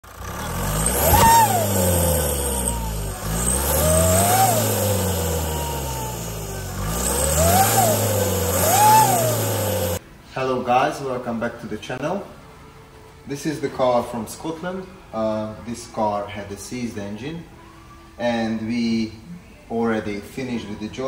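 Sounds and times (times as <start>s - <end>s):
engine revving: 0.0s - 10.0s
whistling turbo whine: 0.1s - 10.0s.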